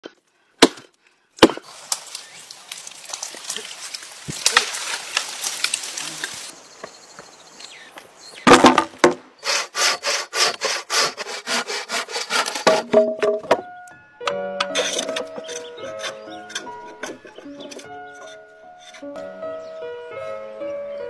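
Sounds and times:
twigs crackling: 0.9 - 9.1, 14.6 - 19.1
hand saw cutting wood: 9.4 - 13.1, 14.6 - 19.2.

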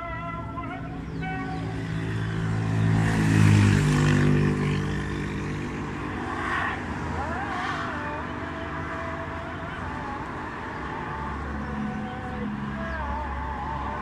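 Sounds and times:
passing engine hum: 0.0 - 14.0.

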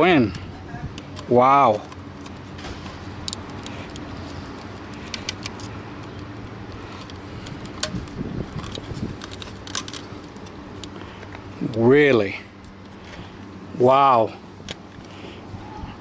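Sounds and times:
plastic connector clicking and rattling: 3.2 - 6.3, 6.9 - 11.0.

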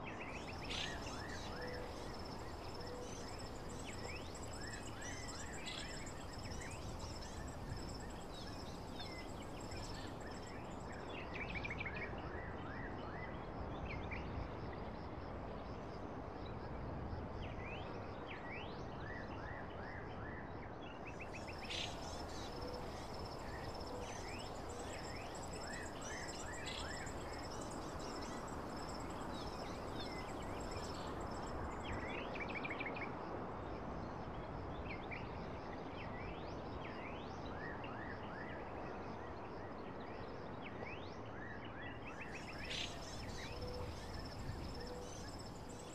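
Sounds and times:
high insect trill: 0.1 - 11.6, 21.3 - 32.3, 42.2 - 45.9.

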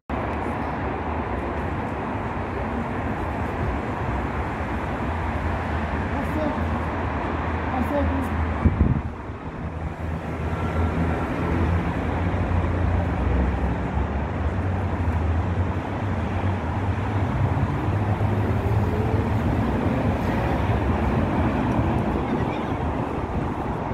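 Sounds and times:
tram motors humming: 8.4 - 23.9.

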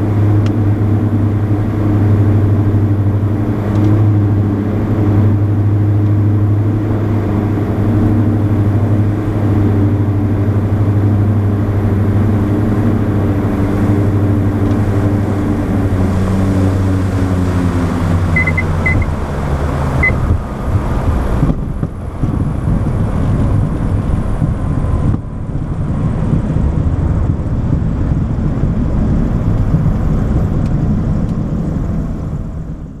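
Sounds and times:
aircraft engines droning: 0.0 - 33.0
short high beeps: 18.4 - 19.1.

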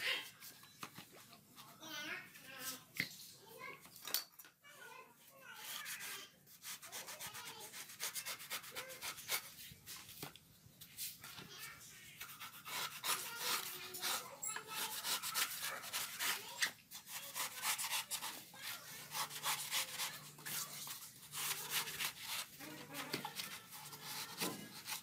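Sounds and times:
knife scraping coconut husk: 5.6 - 9.5, 12.2 - 25.0.

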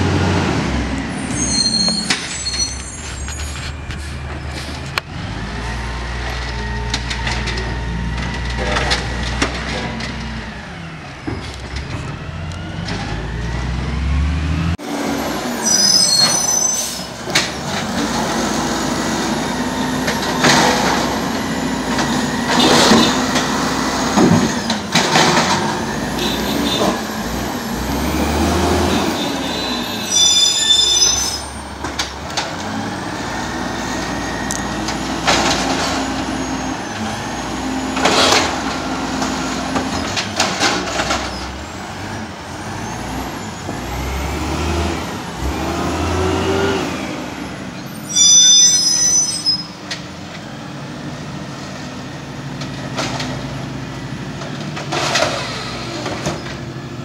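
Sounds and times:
garbage truck diesel engine: 0.0 - 57.0
high squeal: 1.1 - 4.6, 15.5 - 17.2, 28.9 - 31.8, 47.8 - 49.8.

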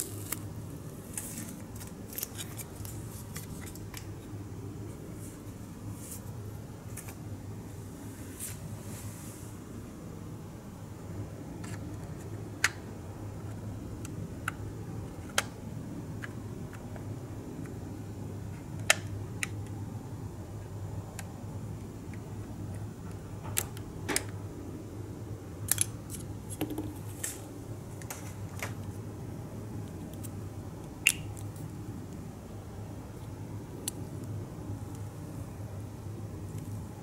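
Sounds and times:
steady low hum: 0.0 - 37.0
small plastic parts clicking: 25.7 - 26.9.

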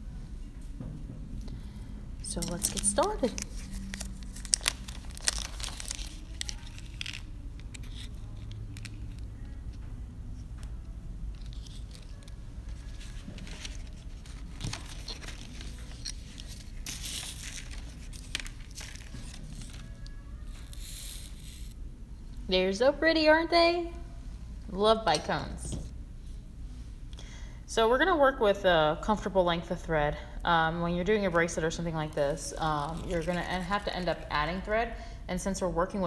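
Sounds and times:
plastic bags crinkling: 2.2 - 9.2, 11.4 - 21.7, 32.1 - 34.6.

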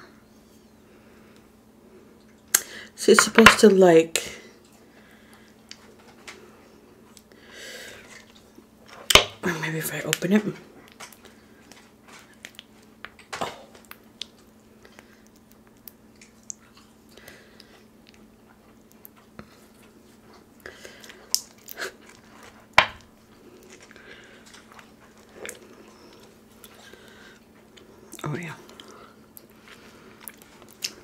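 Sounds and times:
chewing and mouth smacks: 10.8 - 31.0.

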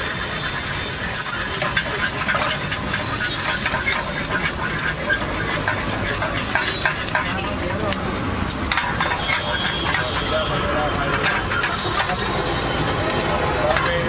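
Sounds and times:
egg sizzling in frying pan: 0.0 - 14.0
metal spatula scraping a pan: 0.0 - 14.0.

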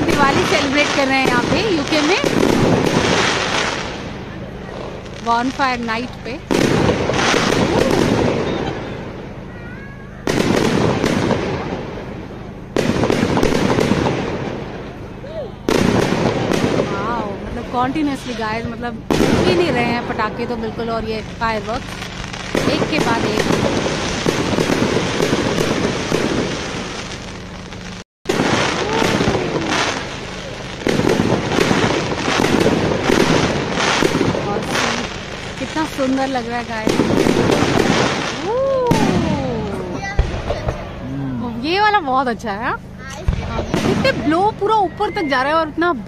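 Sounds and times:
firework crackling: 0.0 - 46.0
firework shells bursting: 10.2 - 41.0.

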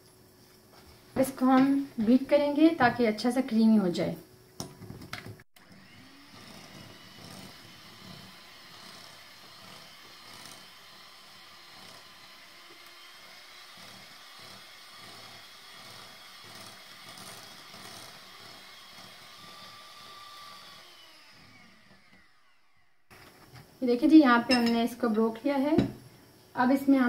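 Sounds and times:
electric hand mixer running: 5.6 - 23.1.

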